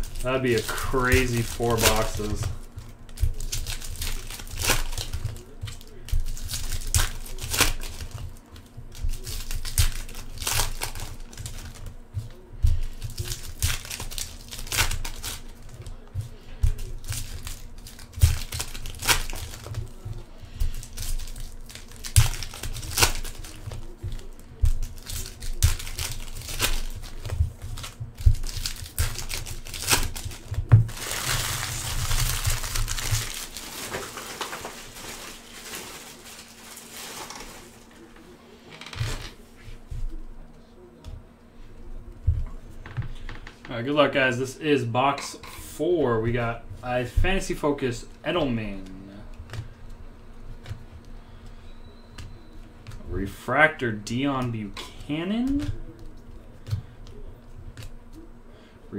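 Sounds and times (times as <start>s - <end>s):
foil wrappers crinkling and tearing: 0.0s - 39.8s, 46.0s - 58.4s
wrapper rustle: 0.0s - 39.8s.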